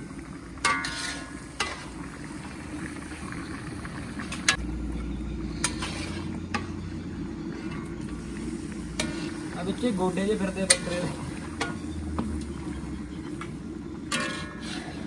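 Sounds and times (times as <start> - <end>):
meat sizzling in a pan: 0.0 - 3.8, 8.1 - 12.3
metal ladle scraping a pan: 0.6 - 2.1, 5.5 - 9.8, 10.6 - 11.8, 14.0 - 15.0.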